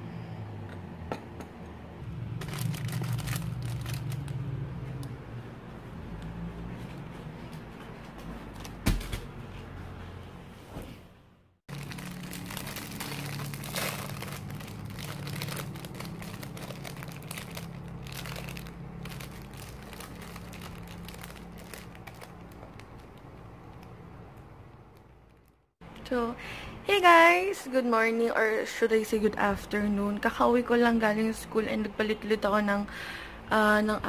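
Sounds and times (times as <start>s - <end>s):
plastic bag crinkling: 2.4s - 4.5s, 11.7s - 23.9s.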